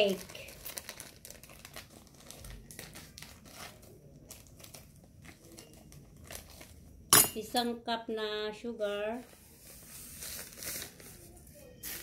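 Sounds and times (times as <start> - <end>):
plastic packet crinkling: 0.0 - 6.9.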